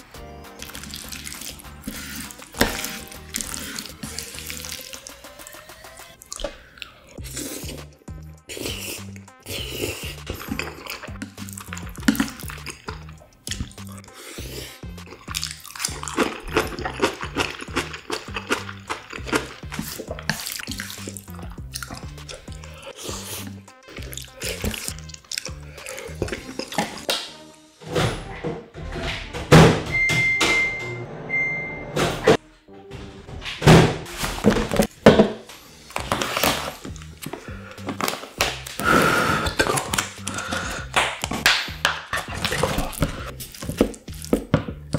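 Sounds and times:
background music with bass line: 0:00.0 - 0:06.2, 0:07.2 - 0:44.9
slurping and chewing noodles: 0:00.5 - 0:27.1, 0:35.6 - 0:44.9
mouth clicks: 0:06.2 - 0:27.1, 0:36.9 - 0:44.9
paper packet crinkling and tearing: 0:35.8 - 0:38.8, 0:39.4 - 0:41.2.

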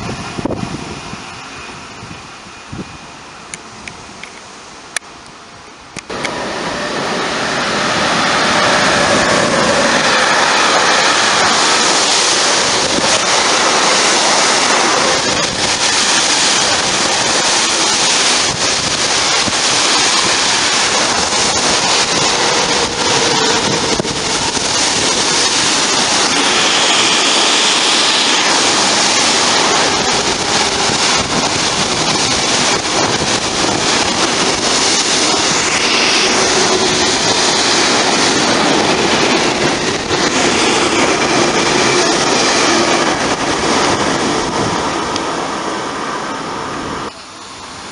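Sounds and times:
freight train passing: 0:00.0 - 0:47.9.

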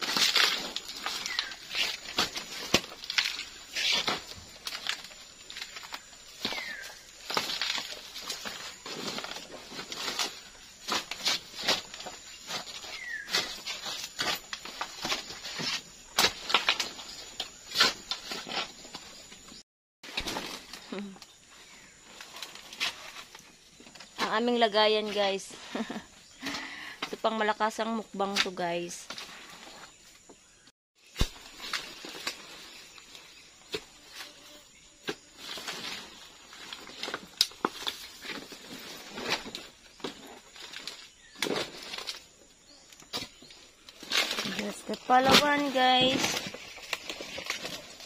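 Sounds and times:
twigs snapping: 0:00.0 - 0:15.4, 0:36.6 - 0:38.5, 0:42.9 - 0:48.0
dry leaves rustling and crackling: 0:00.0 - 0:17.0, 0:43.5 - 0:48.0
rustling stalks and leaves: 0:00.0 - 0:48.0.

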